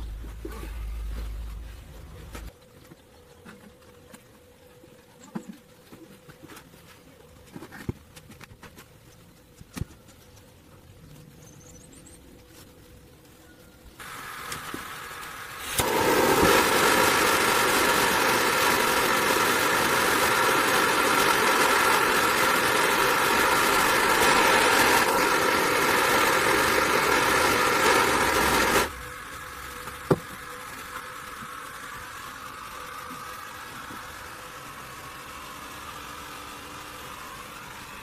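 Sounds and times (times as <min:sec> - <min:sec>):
low steady hum: 0:00.0 - 0:38.0
gas torch hissing: 0:14.0 - 0:38.0.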